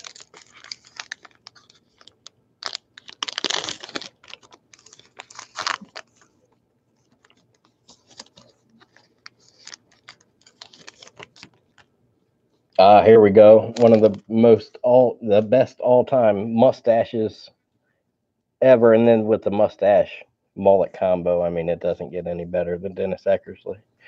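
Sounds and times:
wrapper tearing and crinkling: 0.0s - 11.9s, 13.8s - 14.2s.

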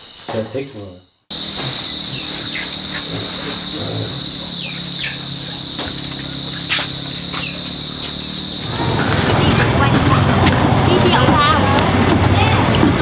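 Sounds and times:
falling bird chirps: 0.0s - 9.0s
insects droning: 0.0s - 13.0s.

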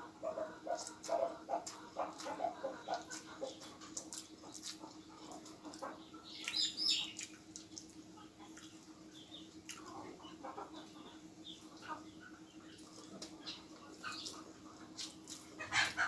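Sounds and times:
faint steady hum: 0.0s - 16.0s
man chewing and lip-smacking: 0.7s - 8.9s, 9.6s - 10.1s.

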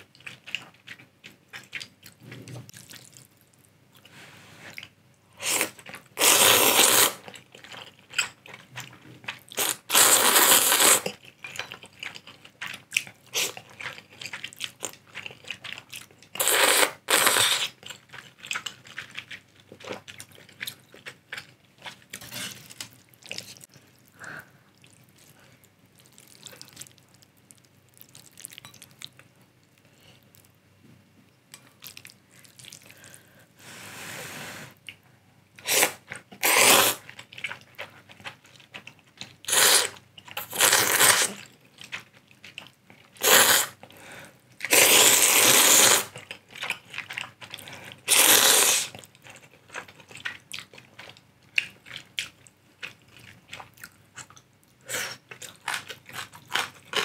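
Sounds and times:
quiet chewing: 0.0s - 6.1s, 6.9s - 33.5s, 35.8s - 57.0s
loud noodle slurps: 5.4s - 7.2s, 9.6s - 11.1s, 35.6s - 37.0s, 39.5s - 41.3s, 43.2s - 43.8s, 44.7s - 46.1s, 48.1s - 48.9s
soft blowing on noodles: 33.6s - 34.8s.

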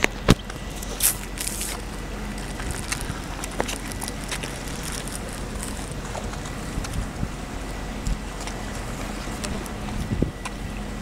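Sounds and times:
wind noise on microphone: 0.0s - 11.0s.

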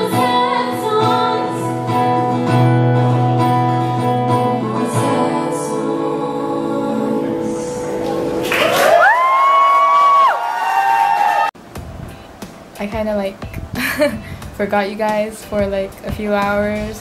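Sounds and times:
woman singing: 0.0s - 7.9s
acoustic guitar: 0.0s - 9.2s, 11.6s - 17.0s
audience cheering: 8.0s - 11.6s
long rising whoop: 8.0s - 11.6s.

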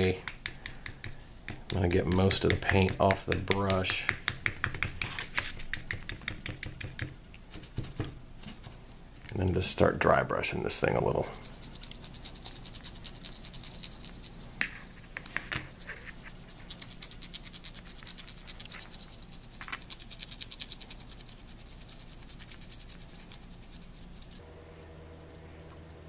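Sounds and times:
paintbrush scratching plastic: 10.9s - 24.4s.

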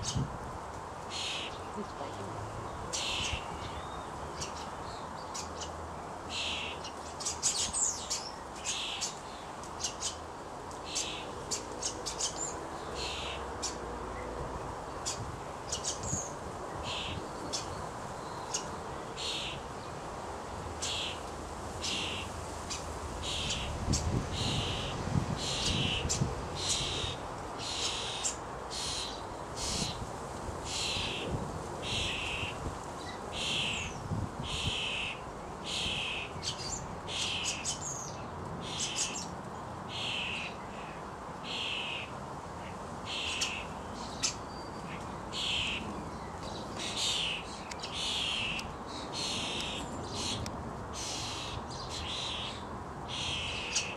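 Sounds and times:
starling chick begging calls: 1.1s - 1.8s, 2.9s - 3.8s, 21.8s - 30.0s, 30.7s - 32.6s, 33.3s - 37.8s, 45.3s - 45.9s, 46.8s - 53.9s.

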